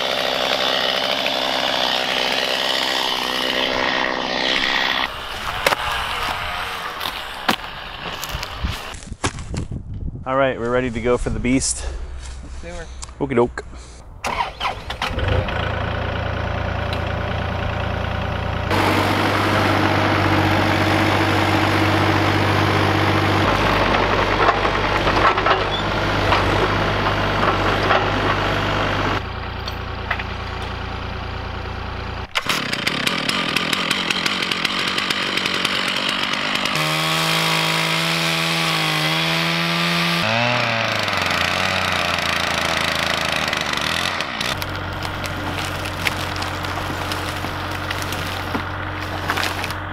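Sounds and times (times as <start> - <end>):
chainsaw cutting log: 0.0 - 9.1, 18.7 - 29.2, 32.2 - 49.9
excavator diesel engine running: 14.2 - 37.5, 40.3 - 49.9.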